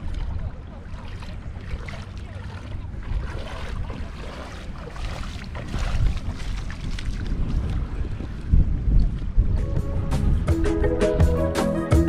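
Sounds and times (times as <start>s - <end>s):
bare feet splashing in water: 0.0s - 9.4s
wind rumble on microphone: 0.0s - 11.5s.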